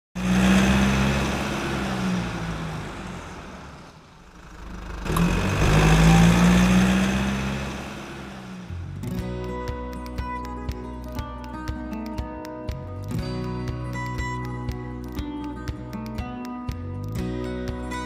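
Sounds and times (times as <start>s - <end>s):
car engine: 0.2s - 9.4s.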